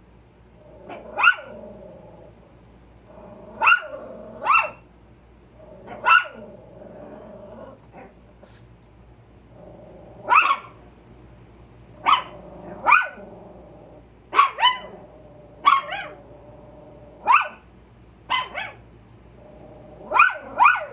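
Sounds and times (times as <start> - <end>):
small dogs barking: 0.6 - 2.2, 3.2 - 4.9, 5.6 - 8.6, 10.2 - 10.9, 12.0 - 17.7, 18.3 - 18.9, 19.8 - 20.9.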